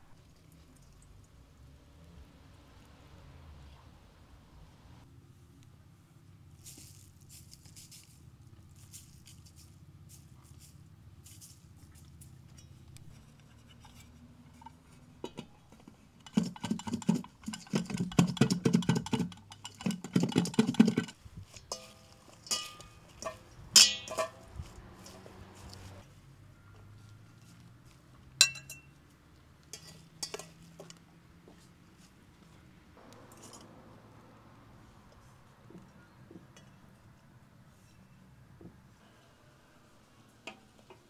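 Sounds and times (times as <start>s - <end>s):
leafy herbs rustling: 6.5s - 12.4s, 21.2s - 26.2s
metal pot and lid rattling: 13.2s - 25.2s, 29.7s - 30.6s
cutlery clinking on steel bowl: 16.2s - 24.4s, 28.4s - 29.0s, 29.7s - 31.0s.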